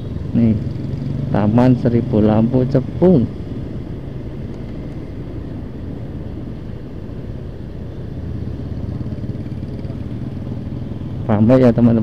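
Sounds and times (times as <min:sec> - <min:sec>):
motorcycle engine running: 0:00.0 - 0:04.4, 0:08.1 - 0:12.0
road noise rushing: 0:00.0 - 0:12.0.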